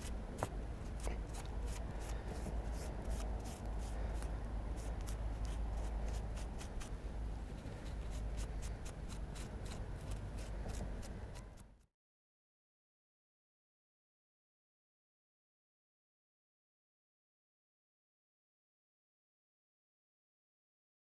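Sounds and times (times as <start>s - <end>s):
fingers rubbing crumbly soil: 0.0s - 11.8s
steady low rumble: 0.0s - 11.8s.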